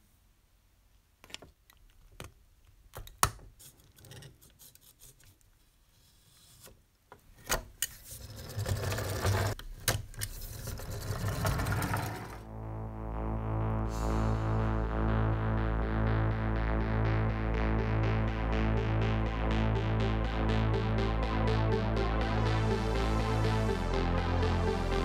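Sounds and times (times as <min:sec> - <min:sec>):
metal scraping and rubbing: 0:10.2 - 0:12.5.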